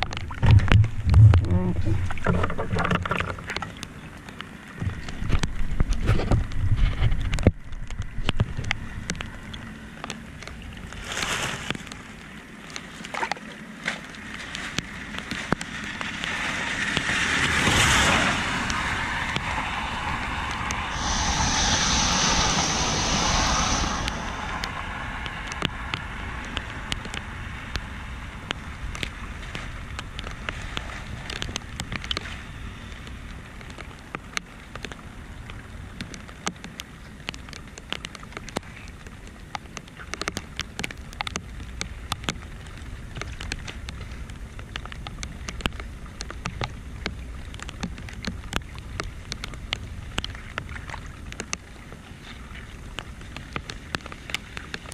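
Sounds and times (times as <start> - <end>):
flood water rushing and splashing: 0.0 - 54.9
rain falling: 0.0 - 54.9
knocks and thumps: 0.3 - 3.6.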